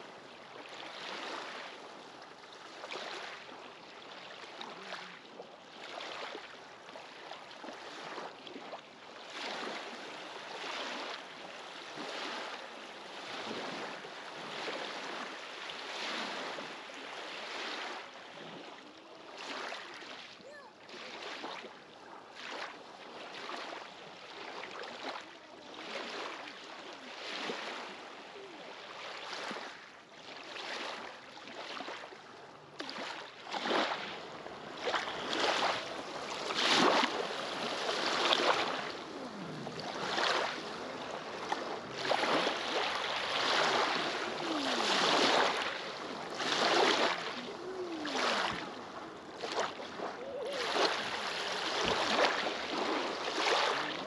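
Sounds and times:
waves lapping on pebble shore: 0.0s - 32.2s, 32.8s - 54.0s.

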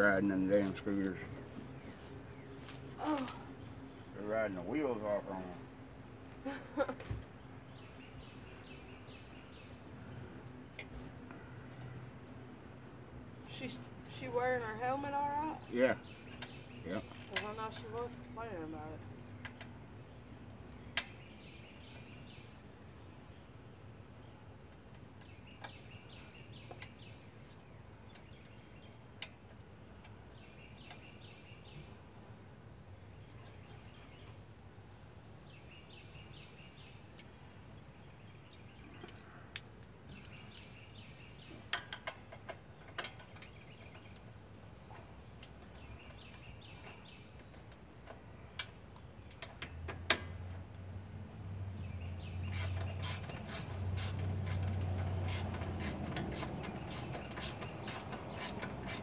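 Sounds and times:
bird high chirp: 0.0s - 12.0s, 13.1s - 19.6s, 20.5s - 29.0s, 29.6s - 45.0s, 45.6s - 48.7s, 49.3s - 59.0s
small clicks from engine work: 44.9s - 50.6s, 52.5s - 59.0s.

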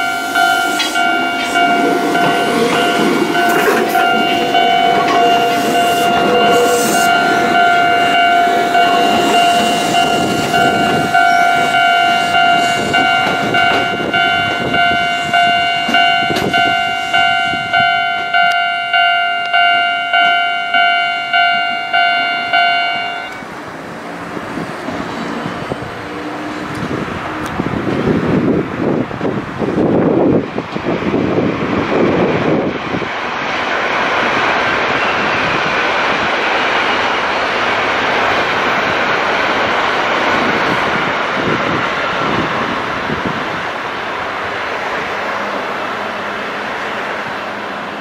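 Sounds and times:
level-crossing warning bell ringing: 0.0s - 24.7s
electric train running rumble: 0.0s - 48.0s.

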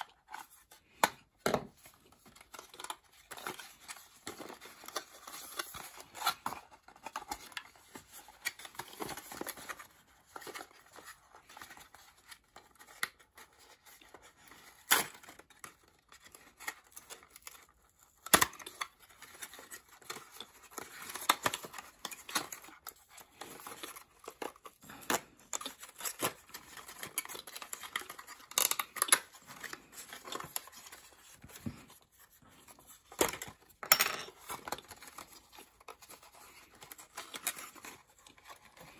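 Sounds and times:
cardboard rustling and tearing: 34.4s - 38.9s.

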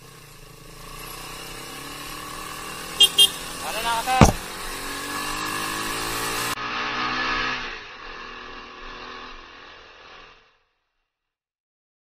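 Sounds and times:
motorcycle engine running: 0.0s - 6.8s
sharp knock: 4.1s - 4.6s.

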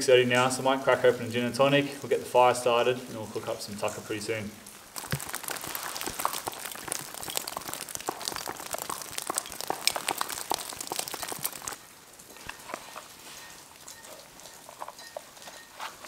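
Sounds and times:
crunching on wet gravelly sand: 4.1s - 15.0s.

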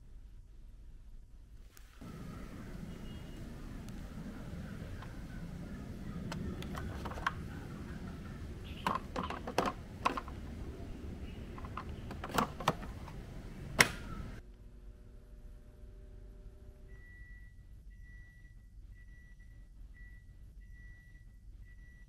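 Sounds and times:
low steady rumble: 0.0s - 22.0s
plastic clicks and knocks: 6.2s - 8.0s, 8.7s - 10.7s, 11.5s - 14.2s.

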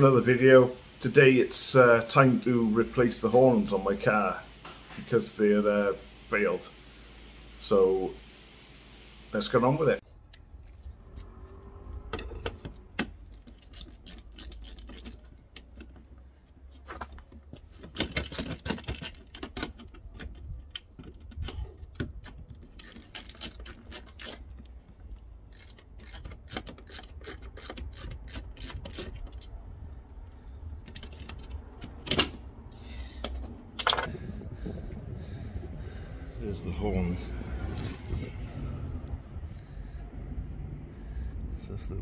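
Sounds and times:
low steady rumble: 0.0s - 13.7s, 29.1s - 42.0s
plastic clicks and scrapes: 12.3s - 29.6s.

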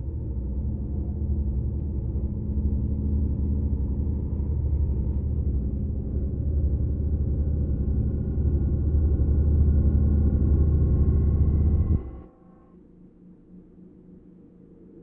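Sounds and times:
ambient drone music: 2.2s - 15.0s.

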